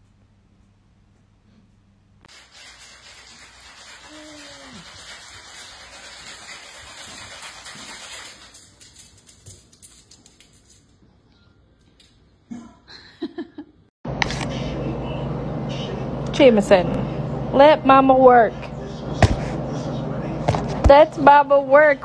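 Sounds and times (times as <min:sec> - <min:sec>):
ice cubes rattling and clinking: 0:02.3 - 0:09.1.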